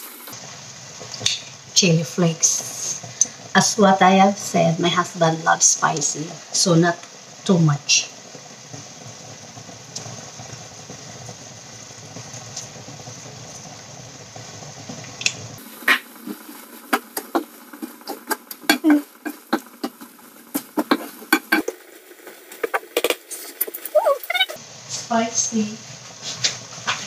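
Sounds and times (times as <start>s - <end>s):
food sizzling: 0.0s - 27.0s
spatula knocking and scraping wok: 15.8s - 21.8s.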